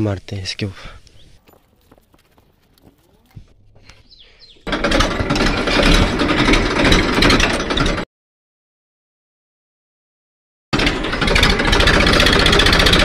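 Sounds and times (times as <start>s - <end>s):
tractor diesel engine clattering: 4.4s - 8.1s, 10.8s - 13.0s.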